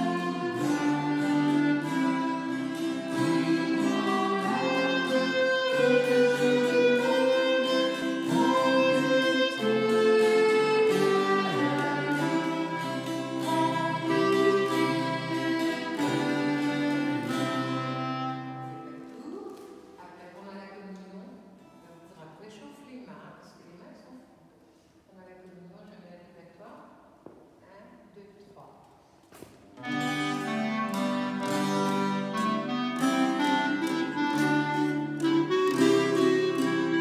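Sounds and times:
string players: 0.0 - 19.9, 29.8 - 37.0.

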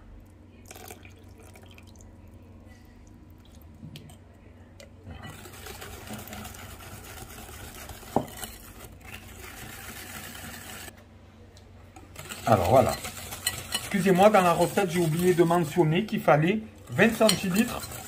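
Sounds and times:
whisk beating batter in glass bowl: 5.2 - 10.9, 12.1 - 18.0.

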